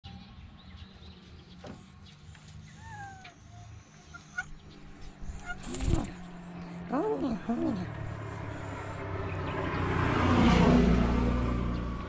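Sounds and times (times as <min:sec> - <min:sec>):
cat meowing: 0:05.3 - 0:06.2.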